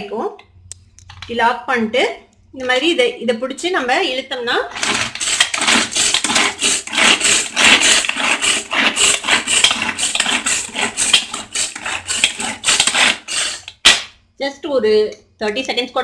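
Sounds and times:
pull-cord food chopper whirring: 4.7 - 13.8.

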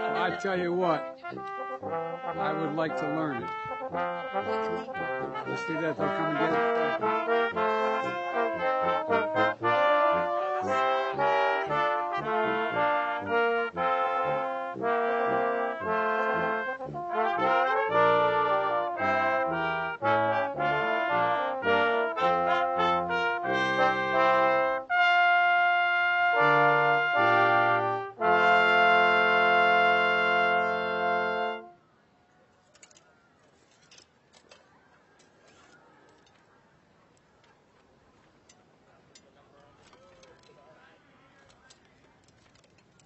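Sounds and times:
brass ensemble playing chords: 0.0 - 31.8.

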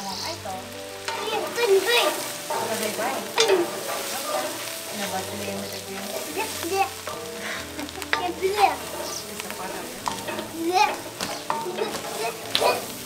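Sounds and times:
vegetables sizzling: 0.0 - 13.0
wooden spoon scraping a pot: 0.0 - 13.0.

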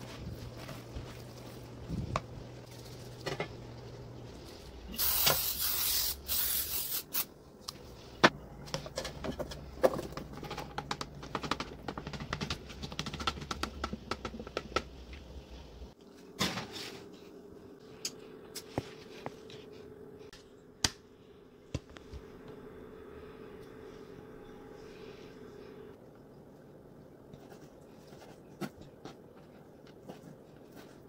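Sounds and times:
aerosol spray hissing: 5.0 - 7.3.

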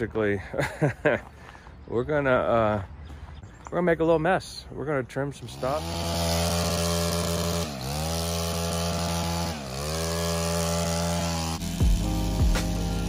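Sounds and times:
power trimmer motor running: 5.5 - 13.0.

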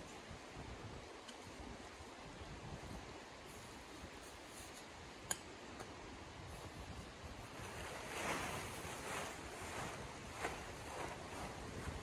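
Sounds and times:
tent fabric rustling and swishing: 2.8 - 5.0, 6.4 - 12.0.

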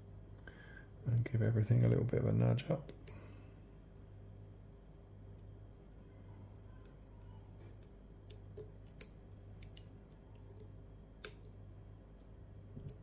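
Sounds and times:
lock pick metallic clicks: 8.3 - 11.6.

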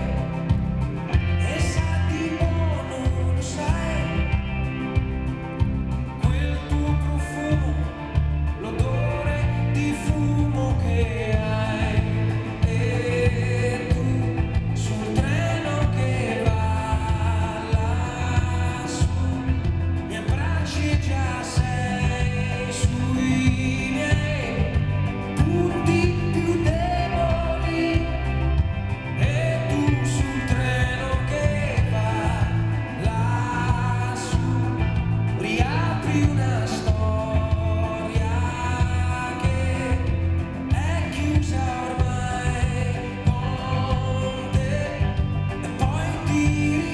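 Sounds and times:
man singing into a microphone: 0.0 - 46.9
pop-rock band playing: 0.0 - 46.9.

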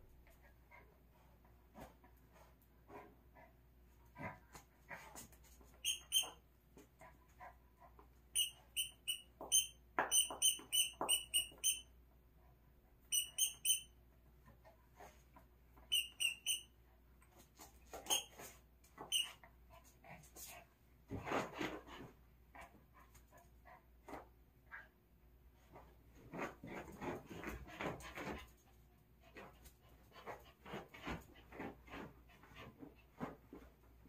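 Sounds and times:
rubber dog toy squeaking: 5.8 - 6.4, 8.4 - 11.9, 13.1 - 13.9, 15.8 - 16.7, 17.9 - 18.4, 19.0 - 19.4
scratching and rustling on floor mat: 19.8 - 22.2, 25.6 - 34.0.

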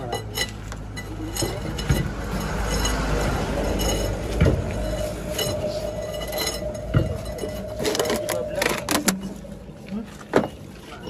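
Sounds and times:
steel tools clinking on metal: 0.0 - 9.3
steady low hum: 1.2 - 10.7
steady tone: 1.3 - 10.9
sharp metal knocks: 1.5 - 5.7.

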